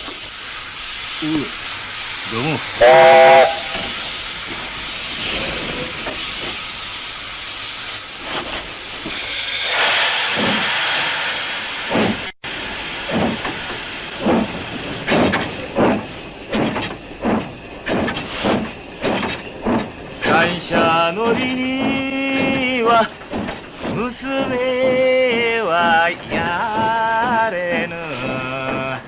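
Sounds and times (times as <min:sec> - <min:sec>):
steam locomotive hissing: 0:00.0 - 0:29.0.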